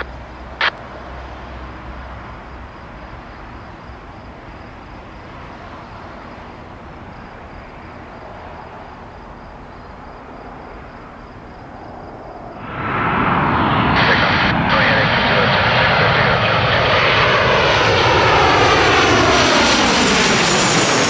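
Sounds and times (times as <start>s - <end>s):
distant jet airliner engine: 0.0s - 21.0s.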